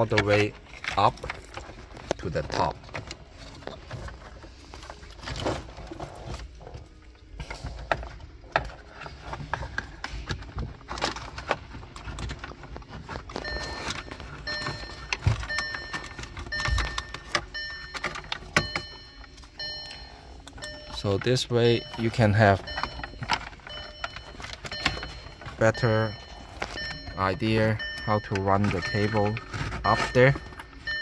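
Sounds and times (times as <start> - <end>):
cables rustling and clicking: 0.0 - 31.0.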